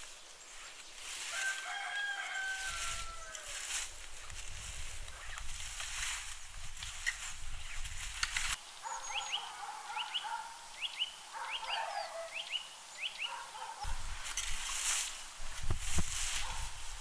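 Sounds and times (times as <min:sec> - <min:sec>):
rake scratching dry leaves: 0:00.0 - 0:09.0, 0:13.8 - 0:17.0.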